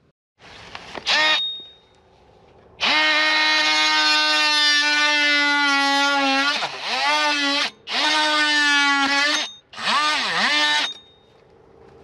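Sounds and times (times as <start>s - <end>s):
power tool motor whining: 2.8s - 11.1s.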